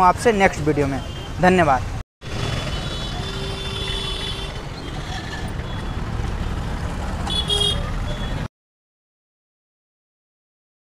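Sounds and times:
street traffic rumble: 0:00.0 - 0:08.5.

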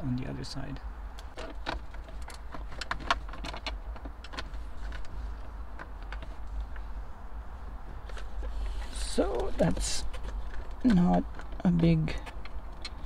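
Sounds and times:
steady low hum: 0:00.0 - 0:13.0
wire and plug clicking and rattling: 0:01.1 - 0:06.9, 0:07.8 - 0:13.0.

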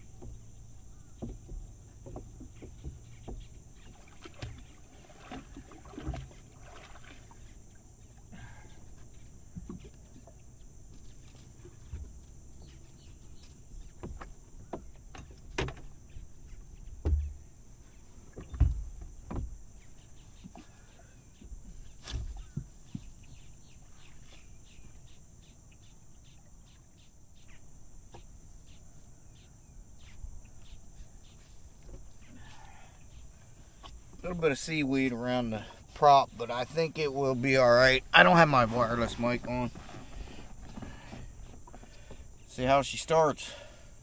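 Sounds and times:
knocks against boat hull: 0:17.0 - 0:17.4.

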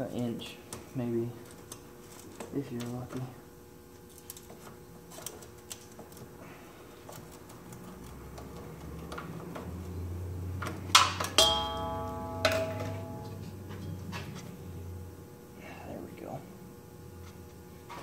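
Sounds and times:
loud metallic clanks: 0:11.0 - 0:13.5.

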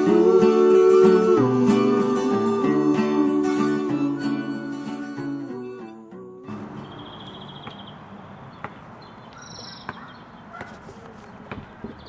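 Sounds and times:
birds chirping: 0:06.5 - 0:12.0.

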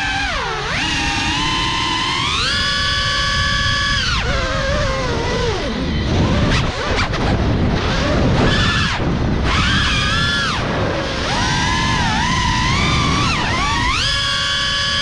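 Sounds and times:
drone motors and propellers whining: 0:00.0 - 0:15.0
rushing wind noise: 0:00.0 - 0:15.0.

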